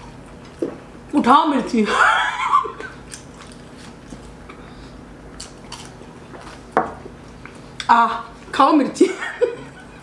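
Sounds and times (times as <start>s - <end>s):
chewing crunchy fried snacks: 2.9s - 6.7s.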